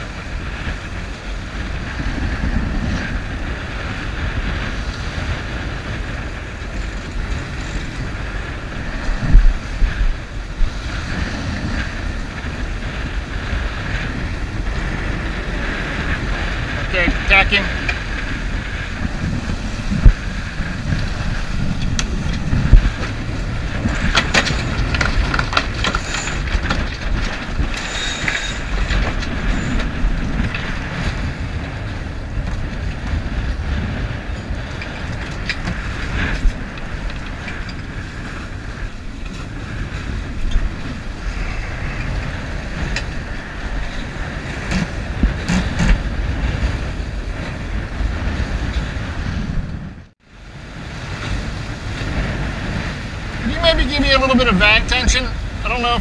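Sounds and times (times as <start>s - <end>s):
water rushing along hull: 0.0s - 56.0s
wind buffeting microphone: 0.0s - 56.0s.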